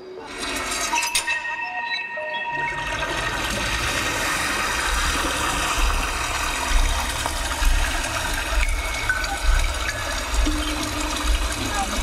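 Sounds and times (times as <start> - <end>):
rushing water: 3.2 - 12.0.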